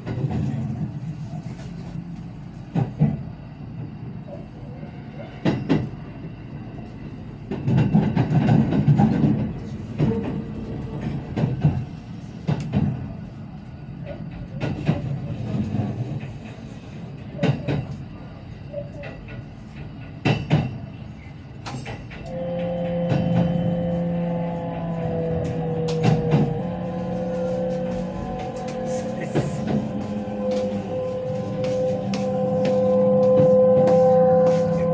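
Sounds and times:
train rumble: 0:00.0 - 0:34.9
braking hum falling in pitch: 0:22.3 - 0:34.9.

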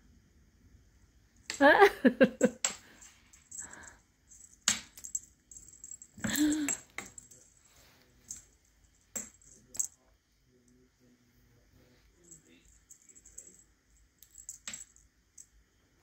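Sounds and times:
person humming: 0:06.2 - 0:06.8.

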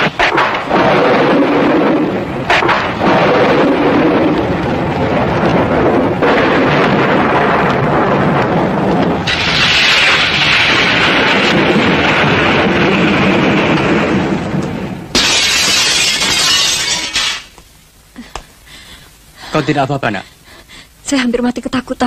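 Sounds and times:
lightning bolt sound effect: 0:00.0 - 0:17.5.

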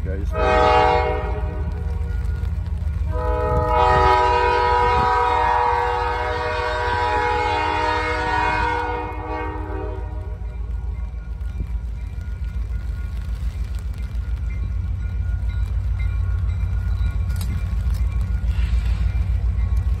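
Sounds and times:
train low rumble: 0:00.0 - 0:20.0
locomotive air horn chord: 0:00.3 - 0:01.6, 0:03.1 - 0:10.3.

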